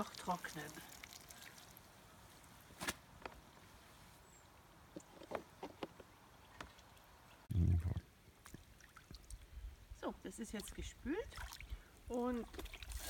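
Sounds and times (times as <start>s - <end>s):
water splashing and dripping: 0.0s - 2.0s
low rumble: 7.5s - 8.1s.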